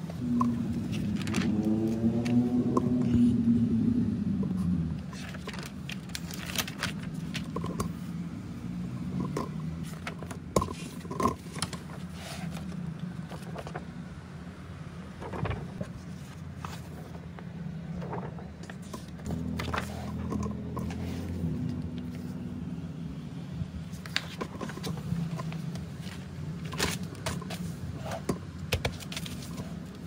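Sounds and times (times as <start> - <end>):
magazine pages rustling: 0.6 - 2.4, 5.1 - 7.8, 9.8 - 14.1, 15.1 - 22.4, 23.8 - 30.0.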